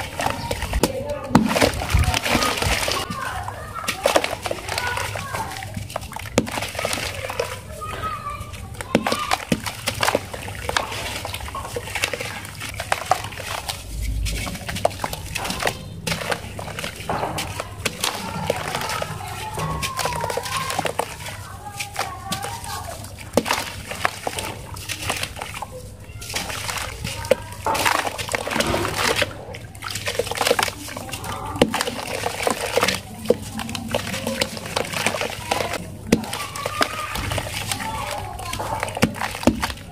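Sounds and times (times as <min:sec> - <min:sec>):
gritty crackling of crumbling cement: 0:00.0 - 0:39.9
small splashes and plops in water: 0:00.0 - 0:39.9.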